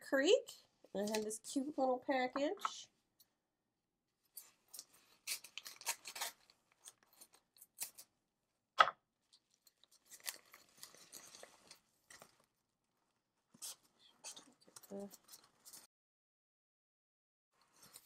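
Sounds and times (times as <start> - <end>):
paper crackling and crinkling: 4.3 - 8.1, 9.4 - 12.5, 13.6 - 15.9
scissors cutting paper: 4.4 - 8.1
soft paper rustling: 9.2 - 15.9, 17.6 - 18.0.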